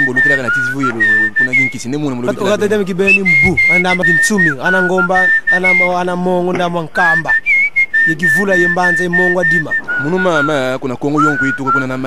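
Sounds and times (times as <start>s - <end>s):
whistled tune: 0.0s - 12.0s
person singing: 2.2s - 2.9s.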